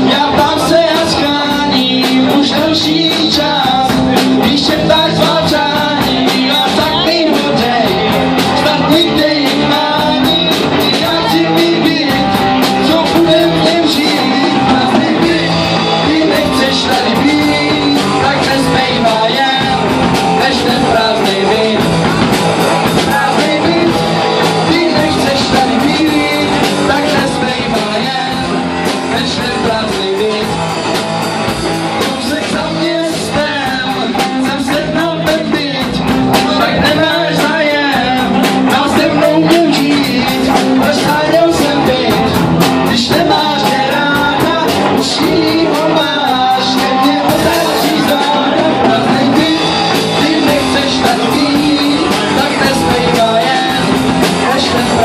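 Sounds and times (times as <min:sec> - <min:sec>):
bass guitar: 0:00.0 - 0:55.0
drum kit with cymbals: 0:00.0 - 0:55.0
electric guitar: 0:00.0 - 0:55.0
person singing: 0:00.0 - 0:55.0.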